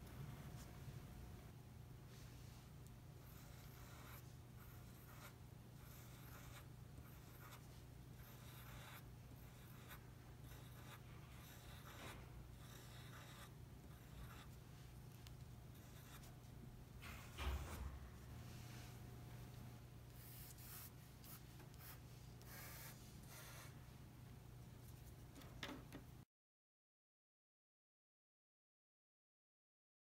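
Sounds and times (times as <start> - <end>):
pencil scratching on paper: 3.2 - 14.6, 15.7 - 16.5, 20.1 - 23.8.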